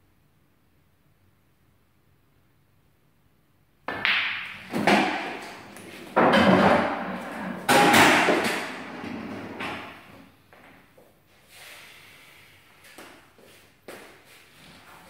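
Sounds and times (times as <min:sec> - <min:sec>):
cue striking ball: 0:03.9 - 0:10.0
ball rolling through table: 0:03.9 - 0:10.2
pool balls colliding: 0:03.9 - 0:10.2.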